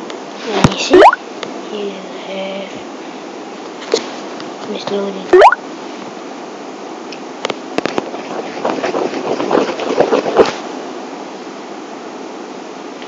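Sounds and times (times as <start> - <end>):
steady background hiss: 0.0 - 8.2, 10.6 - 13.0
rustling and clattering: 7.8 - 10.6.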